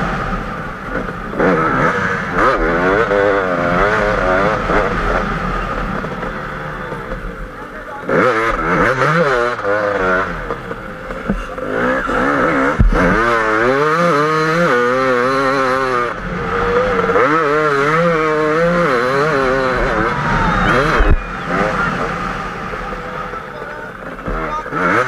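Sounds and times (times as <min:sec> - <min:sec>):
motorcycle engine revving: 0:00.0 - 0:25.0.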